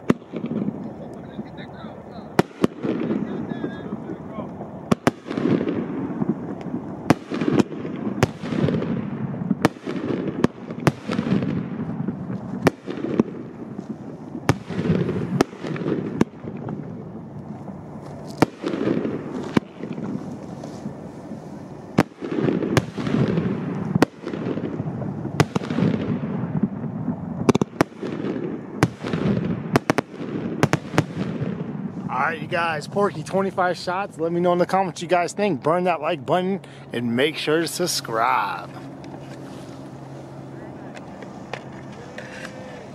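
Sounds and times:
low echo of bangs: 0.0 - 0.9, 2.3 - 17.2, 22.0 - 32.1
firework shells bursting: 2.3 - 17.4, 21.9 - 34.2.

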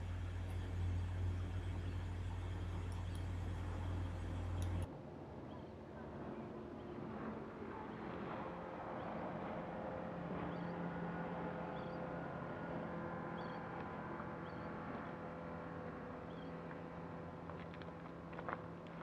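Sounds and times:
distant motorboat engine humming: 0.0 - 4.9, 9.1 - 18.9.

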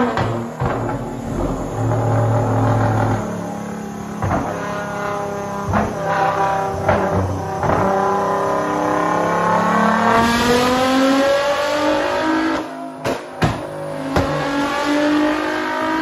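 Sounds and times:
exhaust cracks: 0.0 - 11.1
car engine revving: 0.0 - 16.0.

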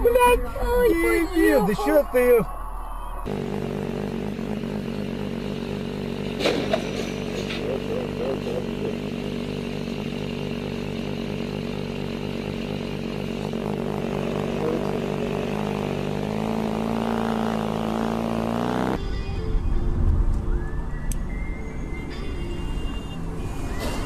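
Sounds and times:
low rumble: 0.0 - 3.4
motorcycle engine running: 3.2 - 19.1.

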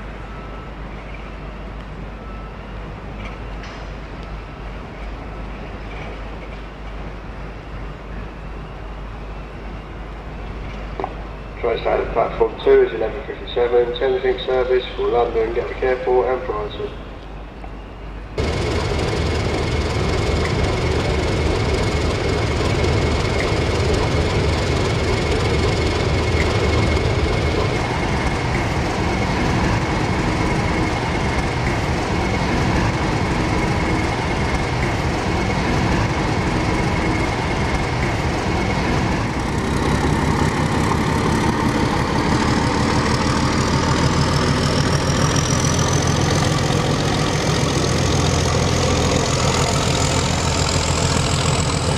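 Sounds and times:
diesel locomotive engine running: 0.0 - 51.9
rising whine: 18.3 - 51.9.

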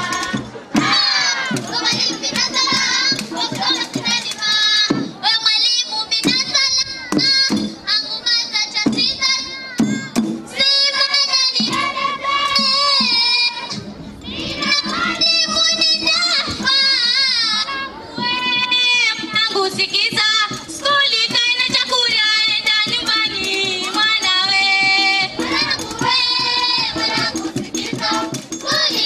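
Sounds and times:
children singing: 0.0 - 5.1, 8.0 - 19.3, 22.8 - 29.0
percussion beats: 0.0 - 29.0.

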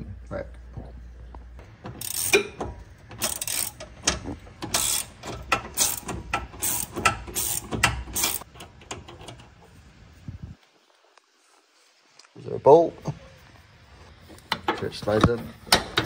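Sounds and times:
ratchet wrench clicking: 1.8 - 9.4.

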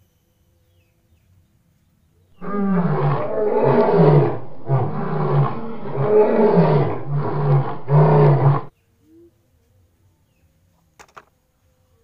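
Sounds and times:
lion roaring: 2.4 - 8.7.

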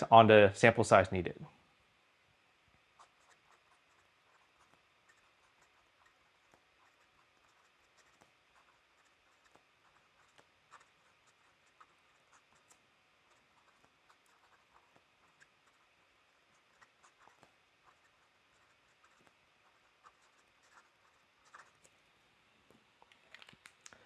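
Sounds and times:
pen nib scratching on paper: 2.8 - 22.0
small pen ticks: 3.0 - 22.0.

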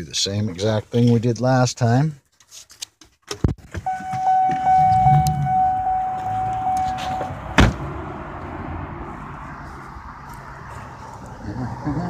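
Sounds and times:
car door shutting: 3.8 - 7.9
car warning chime: 3.9 - 7.5.

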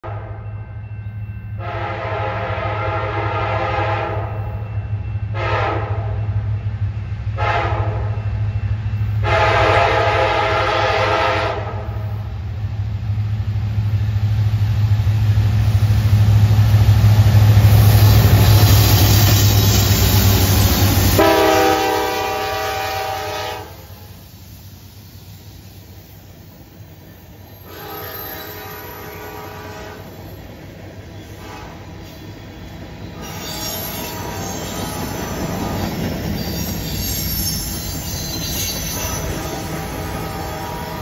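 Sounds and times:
diesel locomotive rumble: 1.5 - 41.0
locomotive horn blasts: 1.6 - 4.6, 5.3 - 6.2, 7.4 - 8.2, 9.2 - 12.2, 20.9 - 24.2, 27.6 - 30.2, 31.4 - 31.8, 33.2 - 34.7, 39.0 - 41.0.

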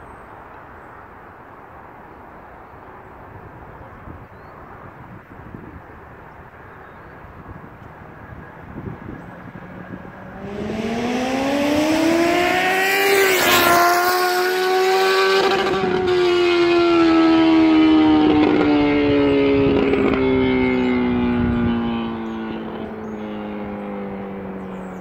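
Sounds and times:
loud motorcycle engine: 9.6 - 25.0.

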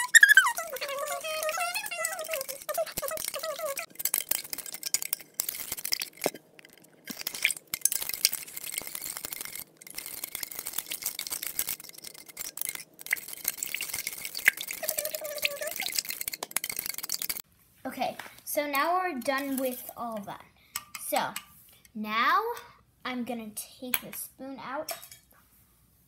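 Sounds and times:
metal spoon scraping and clinking cup: 0.8 - 13.8.

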